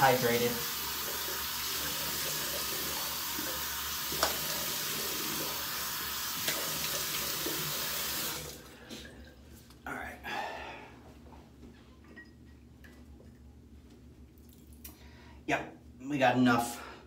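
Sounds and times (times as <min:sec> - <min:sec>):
sink tap running: 0:00.0 - 0:08.7.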